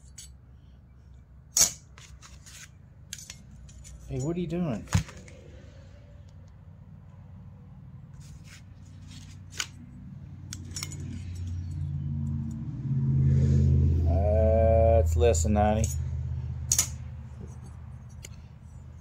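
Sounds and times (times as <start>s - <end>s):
low steady motor rumble: 5.1s - 19.0s
metal plates clicking against calipers: 10.5s - 11.9s.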